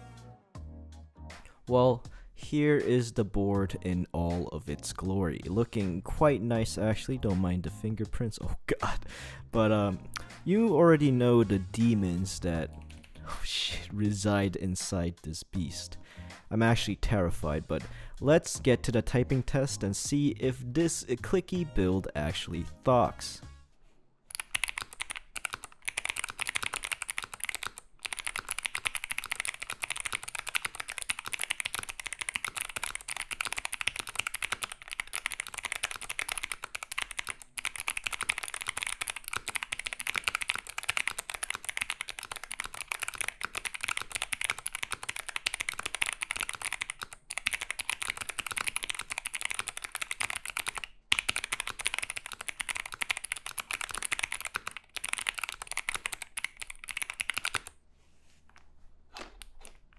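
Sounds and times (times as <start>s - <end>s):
typing on mechanical keyboard: 12.8s - 13.3s, 24.3s - 57.8s.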